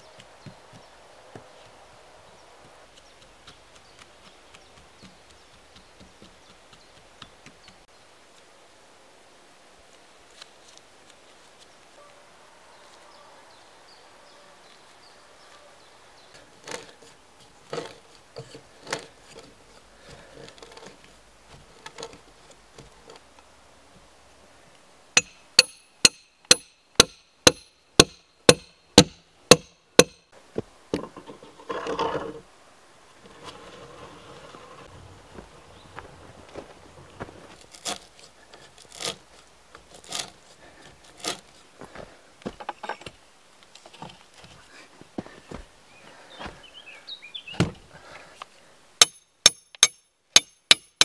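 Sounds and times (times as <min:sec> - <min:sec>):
hand auger knocking and creaking: 0:16.6 - 0:23.2
hammer ringing blows on metal rod: 0:25.2 - 0:30.2.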